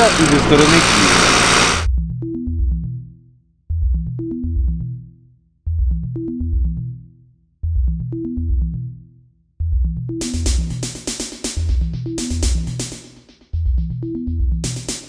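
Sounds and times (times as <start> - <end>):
electronic music loop: 9.8 - 13.0.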